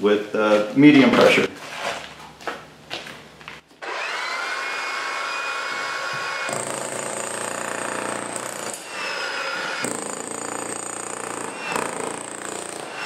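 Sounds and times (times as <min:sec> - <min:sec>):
demolition hammer hammering concrete: 0:06.0 - 0:08.8, 0:09.6 - 0:13.0.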